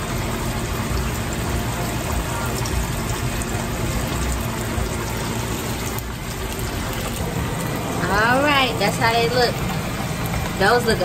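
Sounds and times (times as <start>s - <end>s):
oil sizzling and bubbling: 0.0s - 11.0s.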